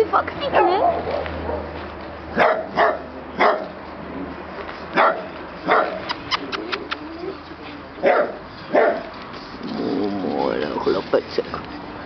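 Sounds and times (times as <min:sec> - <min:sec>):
small dog barking: 0:02.4 - 0:03.7, 0:05.0 - 0:06.2, 0:08.0 - 0:09.1.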